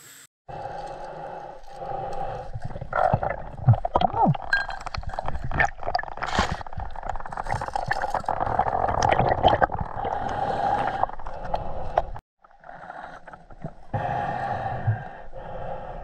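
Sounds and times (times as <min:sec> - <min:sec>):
muffled underwater river gurgling: 0:01.9 - 0:15.8
clicks and scrapes on riverbed: 0:04.5 - 0:09.0.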